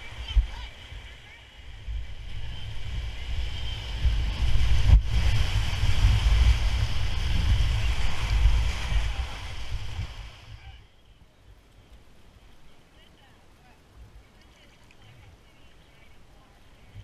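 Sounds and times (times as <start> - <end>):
whitewater rushing against raft: 0.0 - 10.8
wind buffeting microphone: 0.0 - 10.8.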